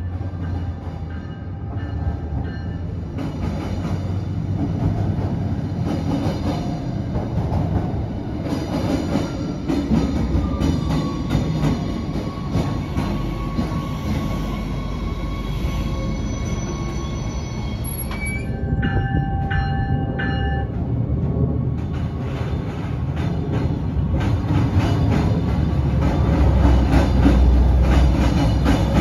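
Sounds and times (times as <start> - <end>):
diesel railcar rumble: 0.0 - 29.0
high-pitched wheel squeal: 10.3 - 18.8.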